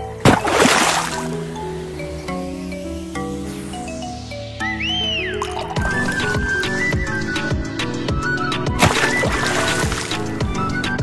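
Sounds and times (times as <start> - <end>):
music with thumping beat: 5.8 - 11.0.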